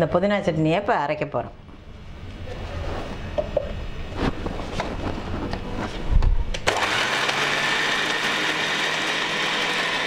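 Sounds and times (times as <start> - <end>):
mixer grinder motor humming: 6.6 - 10.0.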